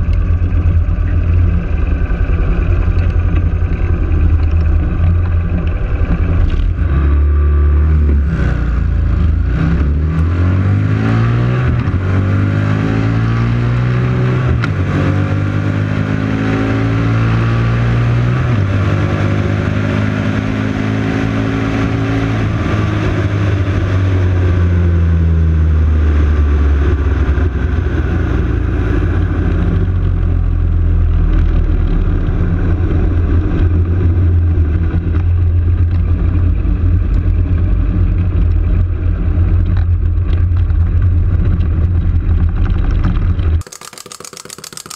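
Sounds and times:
motorcycle engine accelerating: 0:00.0 - 0:35.7.

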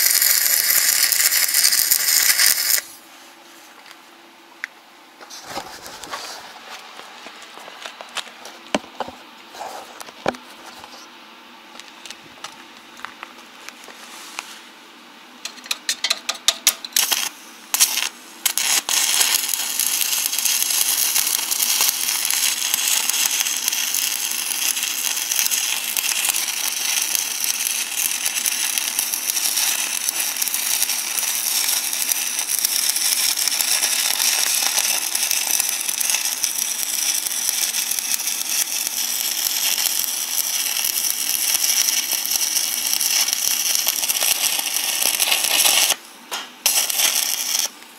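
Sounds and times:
arc welding crackling sizzle: 0:00.0 - 0:03.1, 0:15.4 - 0:47.9.

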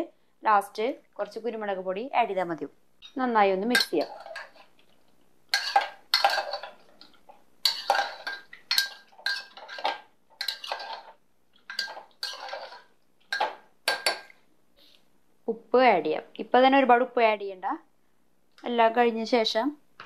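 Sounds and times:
spoon scraping metal pot: 0:03.0 - 0:04.9, 0:05.5 - 0:14.3.

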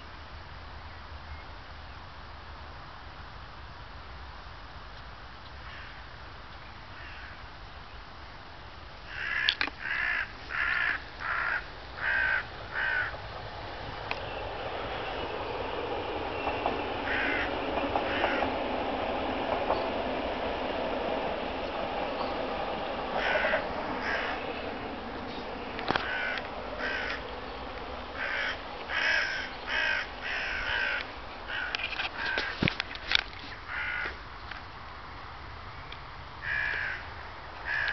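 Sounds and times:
crow cawing: 0:07.0 - 0:07.4, 0:09.1 - 0:13.2, 0:17.0 - 0:18.5, 0:23.2 - 0:24.5, 0:25.9 - 0:27.2, 0:28.2 - 0:32.5, 0:33.7 - 0:34.2, 0:36.4 - 0:37.0, 0:37.6 - 0:37.9.

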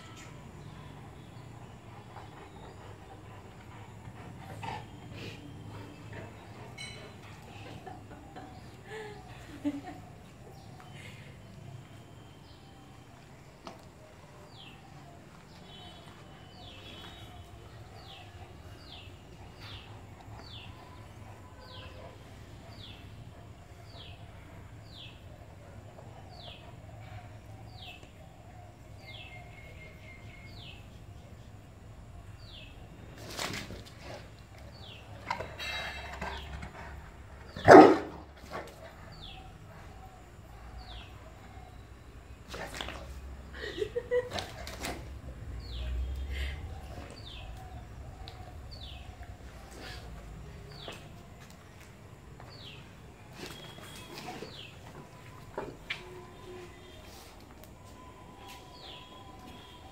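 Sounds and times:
dog barking loudly: 0:37.6 - 0:38.2.

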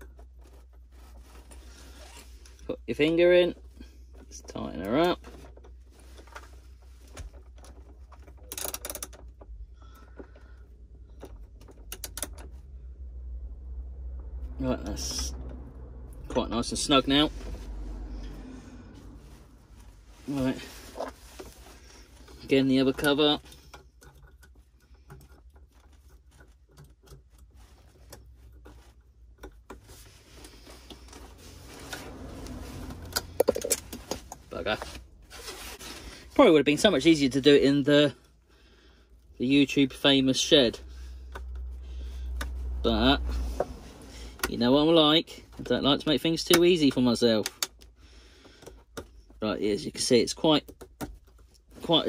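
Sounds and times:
small clicks and taps: 0:11.1 - 0:12.6
plastic cover scraping and rubbing: 0:19.2 - 0:22.5, 0:29.8 - 0:36.5.

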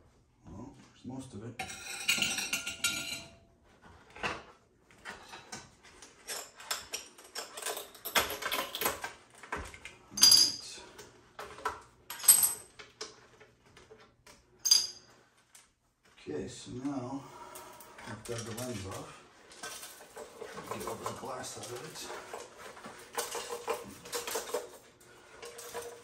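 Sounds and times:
glass clattering: 0:01.6 - 0:03.4, 0:10.2 - 0:10.6, 0:14.6 - 0:15.1, 0:22.9 - 0:26.0
glass clinking and scraping: 0:01.6 - 0:03.5, 0:10.1 - 0:10.7, 0:14.6 - 0:15.2, 0:17.5 - 0:26.0.

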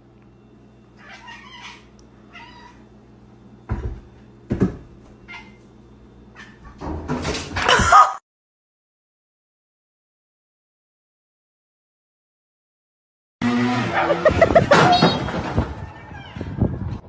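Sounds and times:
steady low hum: 0:00.0 - 0:06.8
cat meowing: 0:01.0 - 0:02.8.

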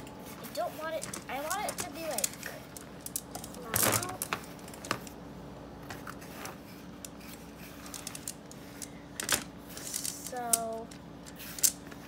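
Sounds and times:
magnetic balls clicking: 0:00.9 - 0:05.2.

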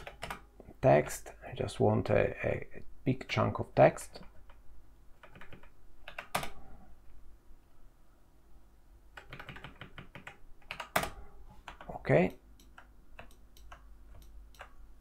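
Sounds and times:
computer keyboard clicking: 0:00.0 - 0:00.4, 0:05.2 - 0:06.6, 0:09.2 - 0:11.9, 0:12.6 - 0:14.8.

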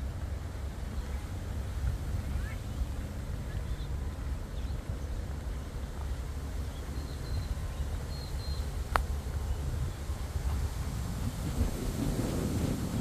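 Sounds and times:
wind buffeting microphone: 0:00.0 - 0:13.0
faint bird chirps: 0:06.7 - 0:08.7.

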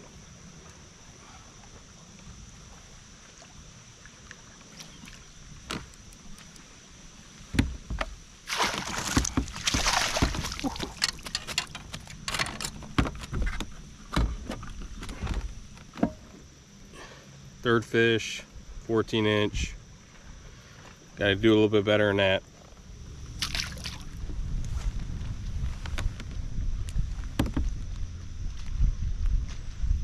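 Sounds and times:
fish splashing: 0:08.5 - 0:11.1, 0:23.4 - 0:24.1.

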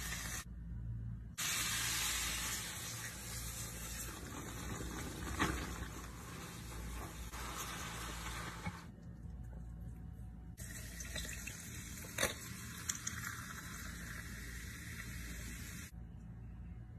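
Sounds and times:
fizzy drink pouring over ice: 0:10.6 - 0:15.2.

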